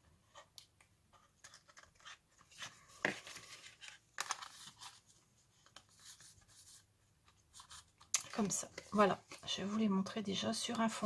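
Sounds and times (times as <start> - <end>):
paper card rustling and scraping: 1.1 - 9.9.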